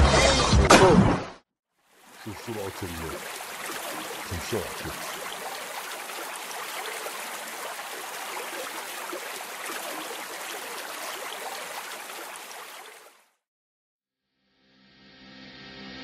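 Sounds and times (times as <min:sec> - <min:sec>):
river water rushing: 0:01.9 - 0:13.2.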